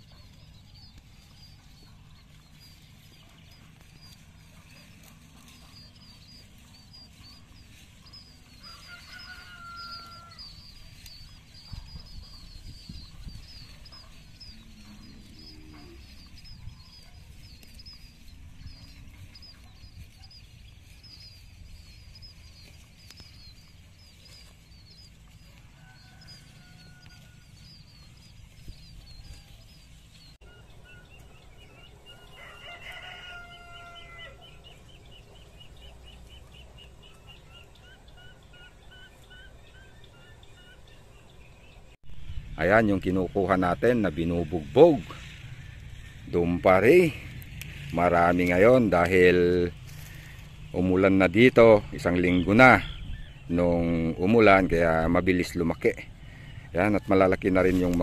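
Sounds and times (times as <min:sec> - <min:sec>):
chickens clucking: 0:00.0 - 0:41.1, 0:42.7 - 0:58.0
pitched chicken calls: 0:00.0 - 0:42.0.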